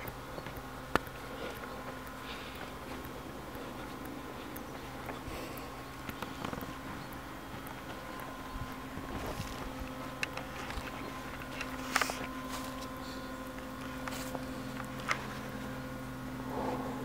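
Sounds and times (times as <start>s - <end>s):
sharp clicks: 0.0s - 15.3s
steady low hum: 0.0s - 17.0s
footsteps on grass and leaves: 8.7s - 13.0s.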